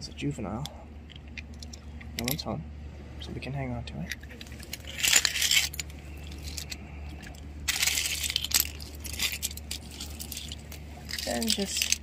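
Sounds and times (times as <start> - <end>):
seashells crunching and clinking: 4.4 - 12.0.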